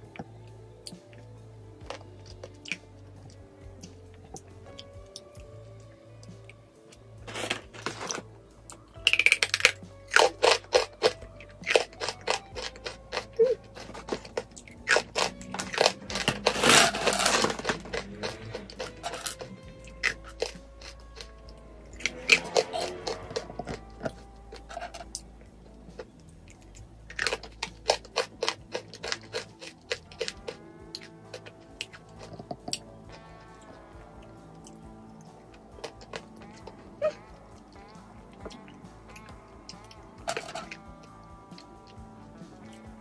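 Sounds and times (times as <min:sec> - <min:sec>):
soft background music: 0:00.0 - 0:43.0
plastic bag rustling: 0:07.2 - 0:08.3, 0:15.5 - 0:19.4
crunching crisps: 0:07.2 - 0:21.4, 0:22.0 - 0:33.8, 0:34.6 - 0:40.8.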